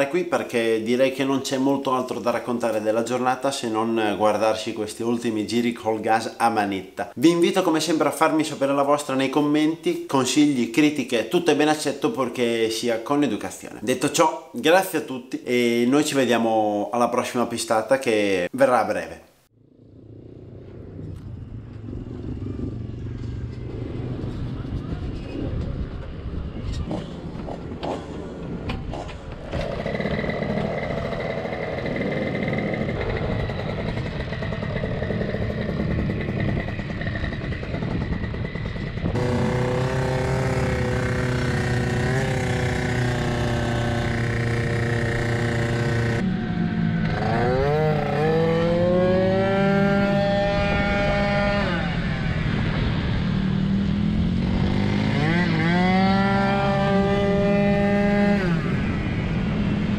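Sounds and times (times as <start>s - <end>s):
two-stroke scooter engine revving: 26.9s - 59.5s.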